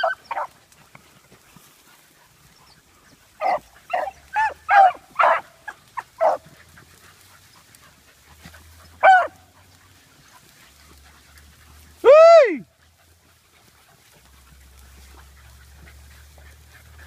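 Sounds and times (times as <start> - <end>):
dog baying: 0.0 - 0.6, 3.4 - 6.8, 8.4 - 9.9.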